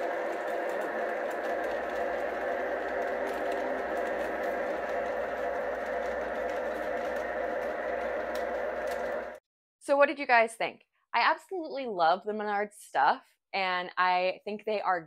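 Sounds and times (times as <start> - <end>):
model train motor whir: 0.0 - 9.4
train wheels rattling: 0.0 - 9.4.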